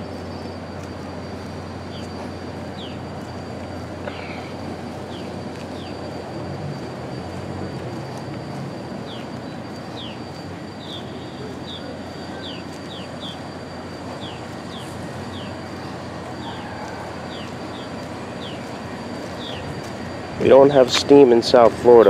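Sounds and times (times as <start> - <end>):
faint high whine: 0.0 - 22.0
train rumbling: 0.0 - 22.0
bird chirping: 1.8 - 3.3, 4.1 - 6.3, 8.8 - 20.3.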